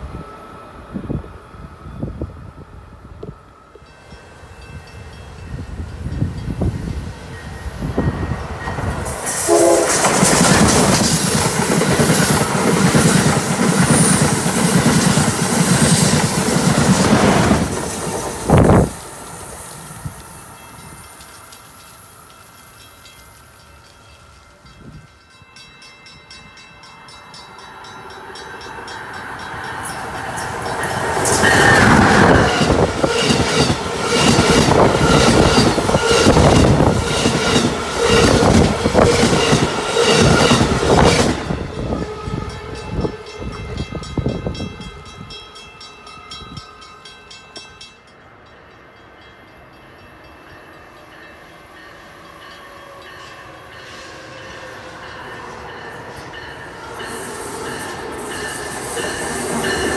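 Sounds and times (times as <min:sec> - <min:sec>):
train rumble: 0:00.0 - 0:47.7.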